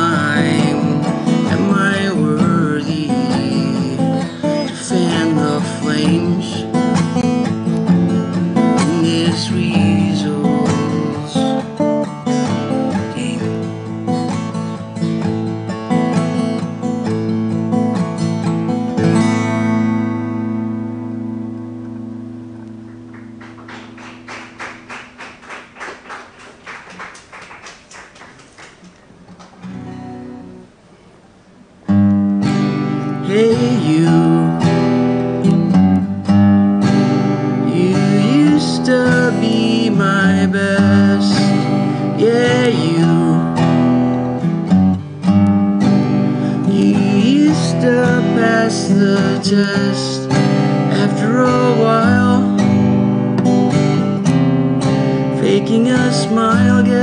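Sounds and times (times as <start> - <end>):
man singing: 0.0 - 7.4, 8.1 - 11.8, 12.5 - 13.8, 33.0 - 35.2, 37.5 - 44.4, 46.4 - 52.8, 55.3 - 57.0
acoustic guitar strumming: 0.0 - 27.2, 28.8 - 57.0.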